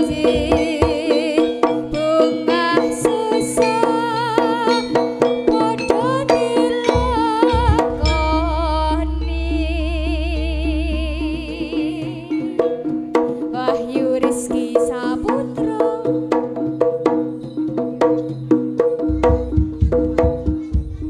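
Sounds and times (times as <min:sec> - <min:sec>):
tuned percussion and drums: 0:00.0 - 0:21.0
wavering melody line: 0:03.6 - 0:16.7
deep drum strokes: 0:07.0 - 0:13.5.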